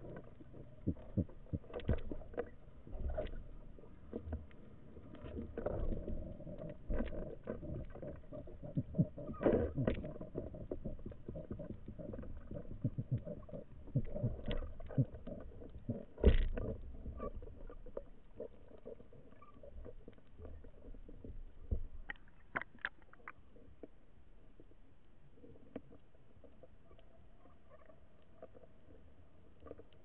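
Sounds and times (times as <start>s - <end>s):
muffled underwater knocking: 5.2s - 18.9s.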